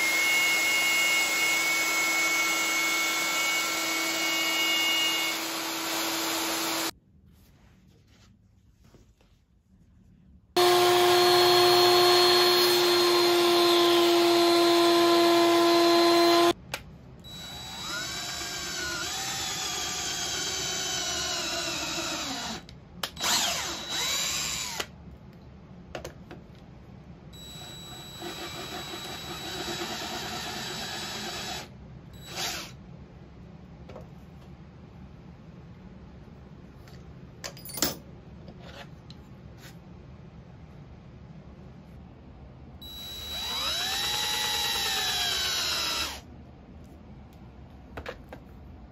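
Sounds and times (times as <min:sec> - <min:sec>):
cordless drill boring into wood: 0:00.0 - 0:06.9, 0:10.6 - 0:16.6, 0:17.3 - 0:24.9, 0:27.4 - 0:32.8, 0:42.9 - 0:46.2.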